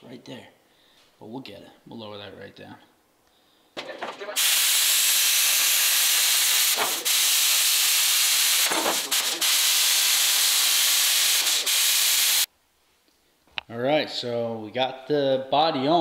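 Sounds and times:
plasma cutter hissing: 0:04.4 - 0:12.5.

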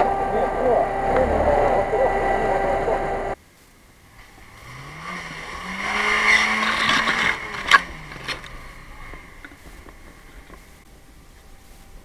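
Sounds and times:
car engine revving: 0:00.0 - 0:03.4, 0:04.0 - 0:10.9
wheels spinning in mud: 0:04.1 - 0:12.0.

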